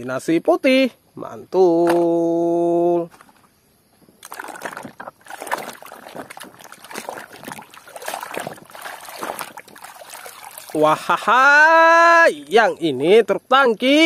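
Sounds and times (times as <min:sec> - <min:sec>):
water sloshing and splashing: 0:04.2 - 0:11.3.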